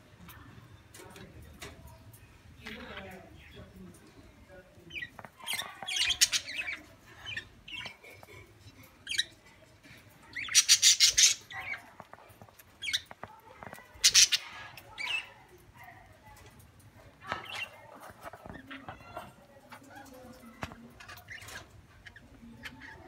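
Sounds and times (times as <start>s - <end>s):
budgerigars chirping and squawking: 4.9s - 15.6s, 17.2s - 23.0s.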